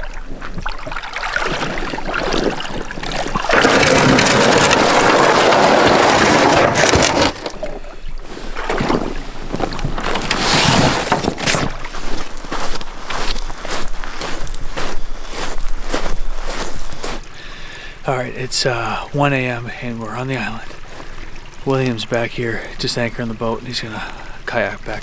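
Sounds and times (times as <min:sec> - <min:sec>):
bags rustling and knocking: 0:03.4 - 0:07.7, 0:08.6 - 0:17.2
footsteps crunching on pebbles: 0:09.0 - 0:17.4.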